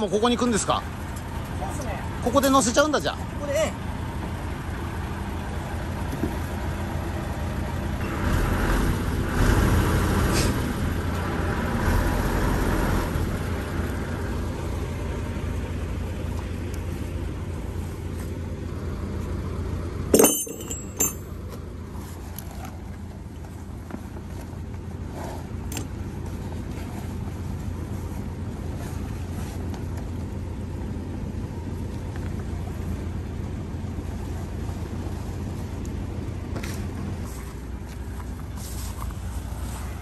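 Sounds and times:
diesel engine idling: 0.0 - 40.0
metallic clank: 20.1 - 21.4.

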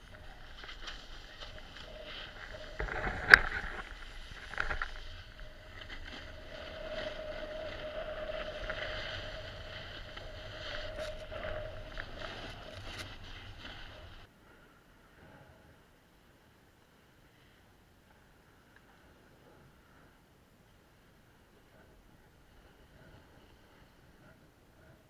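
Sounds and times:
snowboard scraping over snow: 0.0 - 14.3.

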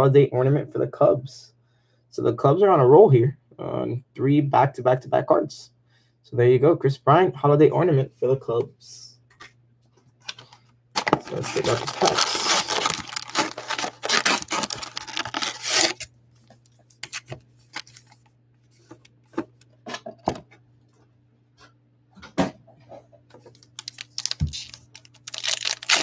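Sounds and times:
cardboard box rustling and scraping: 11.0 - 16.1.

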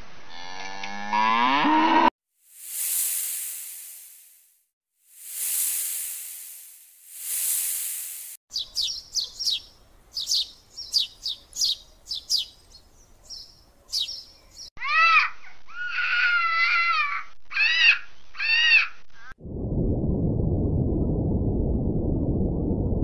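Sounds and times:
snake hissing: 2.5 - 4.5, 5.1 - 8.4
high falling chirps: 5.1 - 14.7
clear rising and falling calls: 5.3 - 14.7.

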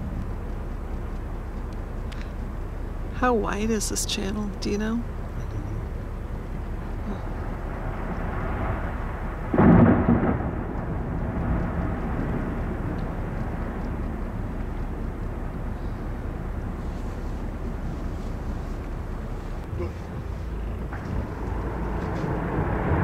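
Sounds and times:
steady low rumble: 0.0 - 23.0
ice cracking boom: 9.5 - 11.6.

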